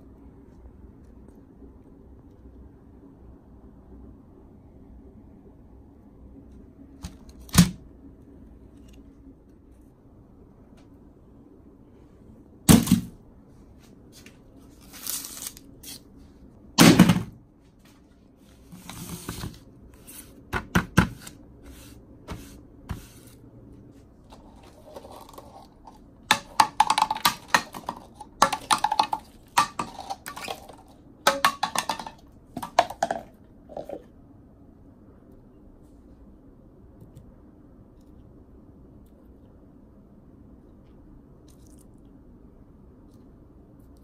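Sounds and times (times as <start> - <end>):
plastic cups clattering: 24.3 - 34.0.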